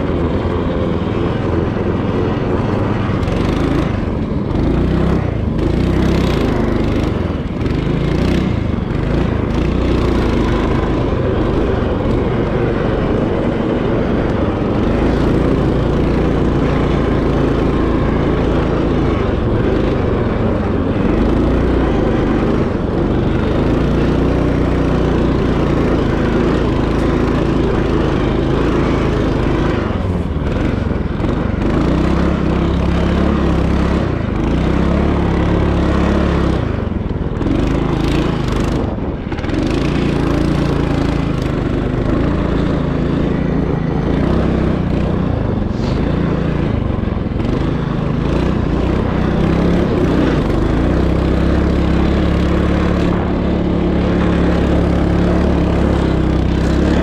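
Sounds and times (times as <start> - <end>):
small petrol engine running: 0.0 - 57.0.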